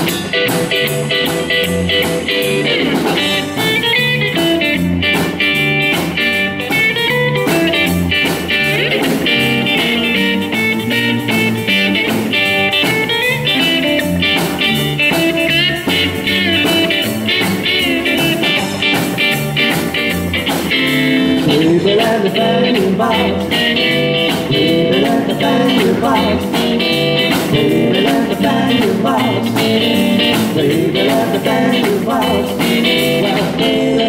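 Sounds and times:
double bass: 0.0 - 34.0
drums: 0.0 - 34.0
electric guitar: 0.0 - 34.0.

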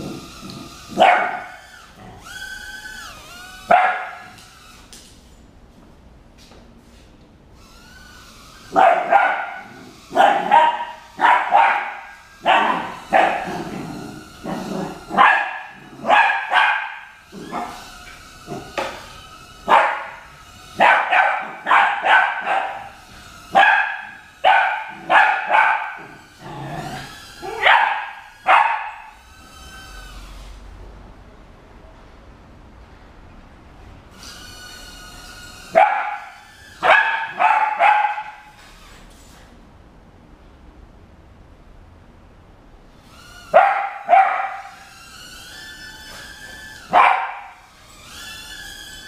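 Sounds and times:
puppy barking: 0.9 - 1.6, 3.6 - 4.4, 8.7 - 13.8, 14.4 - 17.8, 19.7 - 29.2, 35.7 - 38.5, 43.5 - 44.9, 46.9 - 47.7.

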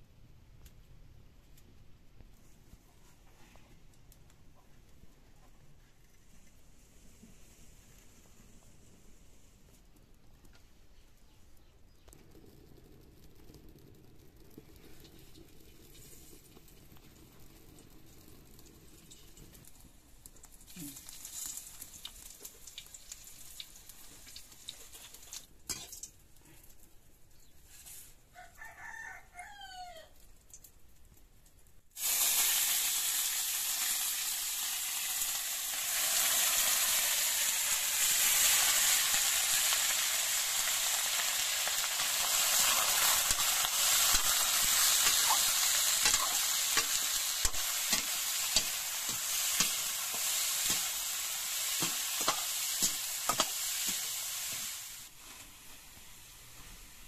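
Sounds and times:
meat sizzling in hot oil: 14.8 - 26.2, 32.0 - 57.0
rooster crowing: 28.4 - 30.2
metal spoon stirring in wok: 42.3 - 54.8.

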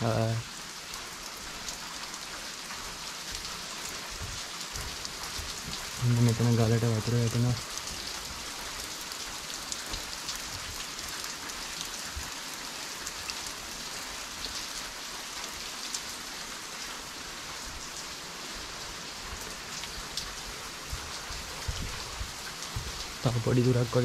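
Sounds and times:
water dripping onto wet rock: 0.0 - 16.1.

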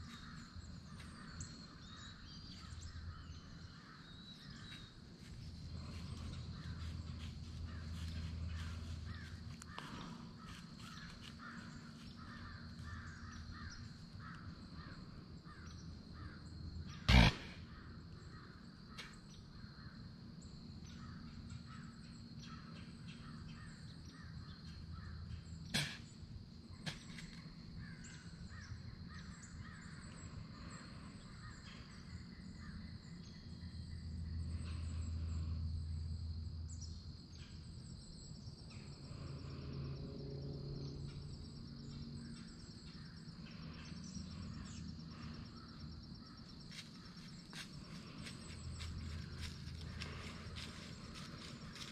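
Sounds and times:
crows cawing: 7.7 - 16.4, 17.1 - 17.8.

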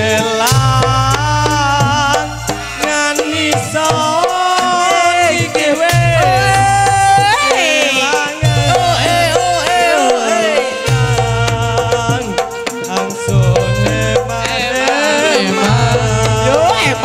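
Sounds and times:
band music through loudspeakers: 0.0 - 17.0
quick hand-drum strokes: 0.0 - 17.0
bending lead melody: 6.0 - 17.0.

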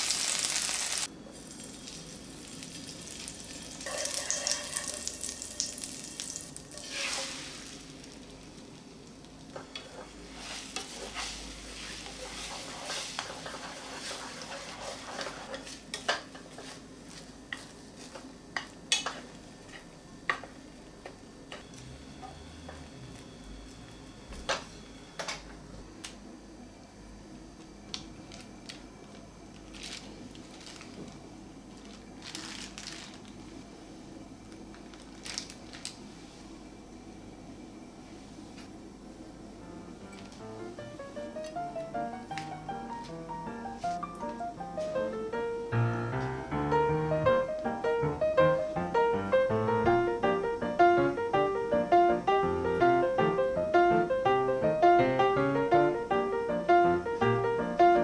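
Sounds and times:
butter and egg sizzling in a pan: 0.0 - 15.7
chopsticks scraping a pan: 3.9 - 5.2, 6.7 - 7.7, 9.7 - 16.8.

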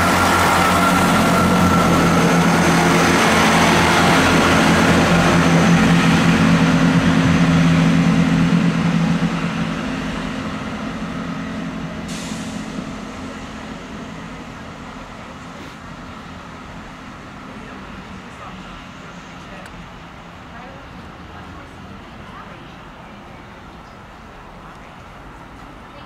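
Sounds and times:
diesel train engines: 0.0 - 26.0
wheel and rail noise: 0.0 - 26.0
short hiss: 12.1 - 12.7.

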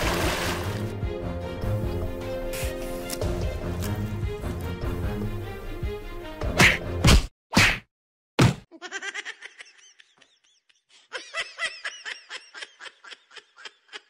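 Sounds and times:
high-pitched laughter: 8.7 - 14.0.

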